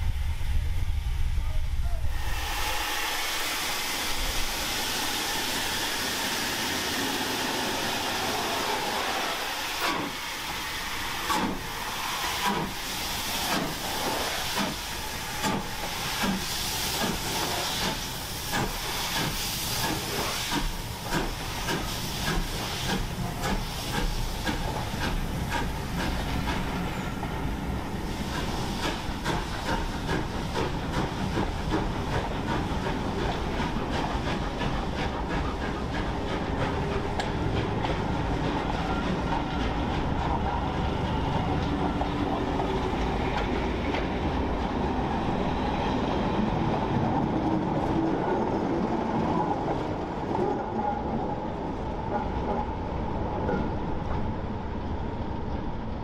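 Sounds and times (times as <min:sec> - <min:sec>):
steam hissing: 0:00.0 - 0:46.8
steam locomotive exhaust chuffs: 0:02.1 - 0:44.7.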